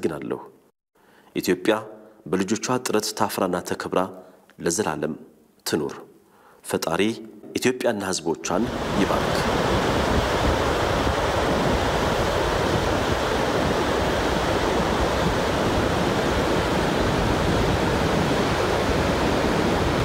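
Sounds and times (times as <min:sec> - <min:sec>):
water rushing over a dam: 0:08.6 - 0:20.0.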